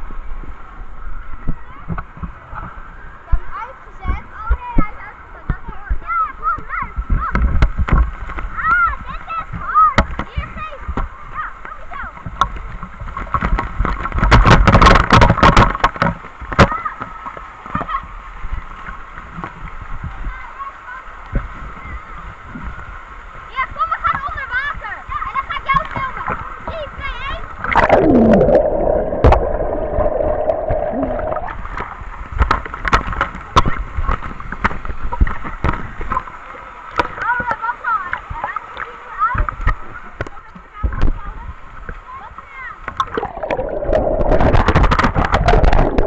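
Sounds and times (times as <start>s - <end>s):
rush of falling water: 0.0s - 46.0s
water splashing onto people: 0.0s - 46.0s
underwater bubbles rushing: 27.6s - 32.1s, 43.0s - 46.0s
water jets spraying: 27.7s - 31.8s, 43.0s - 46.0s.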